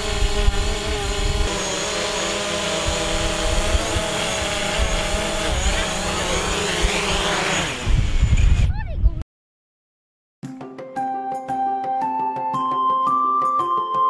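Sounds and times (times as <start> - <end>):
wind rumble on microphone: 0.0 - 1.5, 2.8 - 9.2
drone propellers whining: 0.0 - 8.7.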